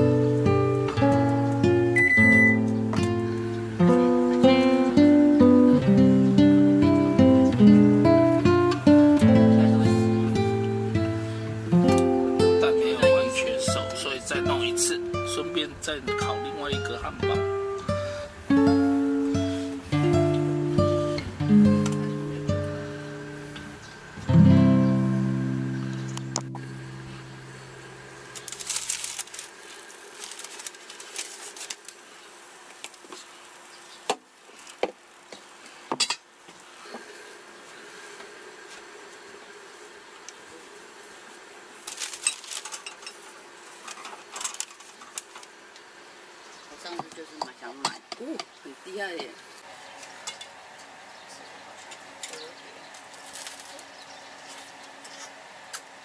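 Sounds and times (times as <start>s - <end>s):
faint steady hum: 0.0s - 56.0s
clicking and paper rustling: 28.3s - 32.0s, 41.8s - 43.2s, 43.8s - 45.5s, 51.9s - 55.4s.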